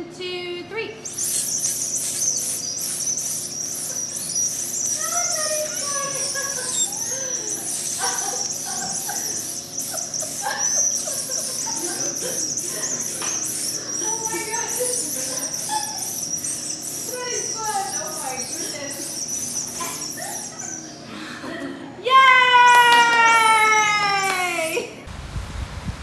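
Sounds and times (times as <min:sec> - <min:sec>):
candy whistles blowing: 0:01.0 - 0:21.0
rapid chirping: 0:01.0 - 0:21.1.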